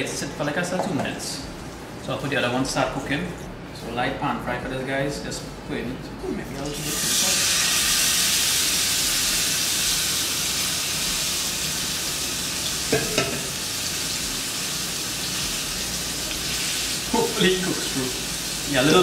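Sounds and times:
fish sizzling in a frying pan: 0:06.8 - 0:19.0.

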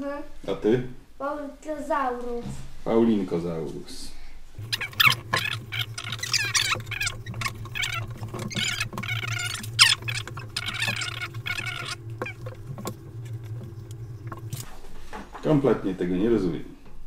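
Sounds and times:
steady low hum: 0:04.3 - 0:15.9.

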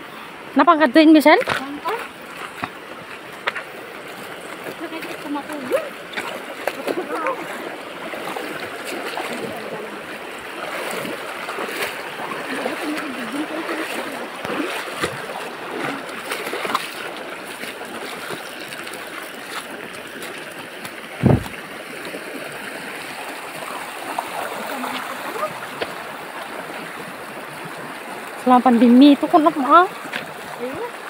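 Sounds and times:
stream rushing over stones: 0:00.1 - 0:31.0
short low thump: 0:21.2 - 0:21.6.

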